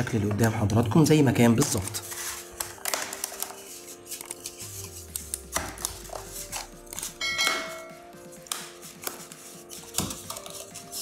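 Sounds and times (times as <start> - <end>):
background music: 0.0 - 11.0
bell chime: 7.2 - 8.0.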